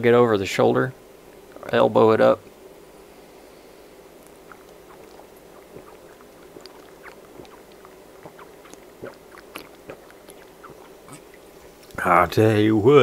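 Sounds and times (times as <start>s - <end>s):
faint steady hum: 0.0s - 13.0s
person gulping and swallowing: 4.3s - 11.6s.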